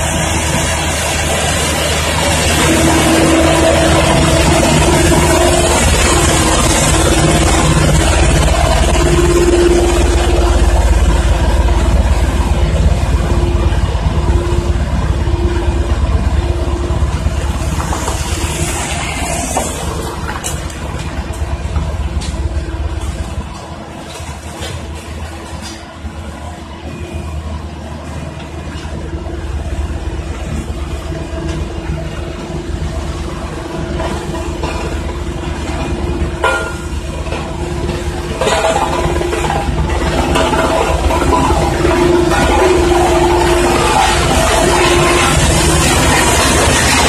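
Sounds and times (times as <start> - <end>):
roller rolling on gravel: 0.0 - 26.2, 28.1 - 47.0
road roller diesel engine: 0.0 - 47.0.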